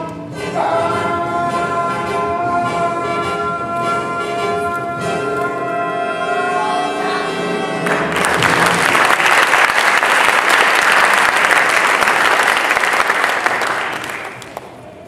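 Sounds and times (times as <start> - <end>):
audience applause: 7.8 - 15.0.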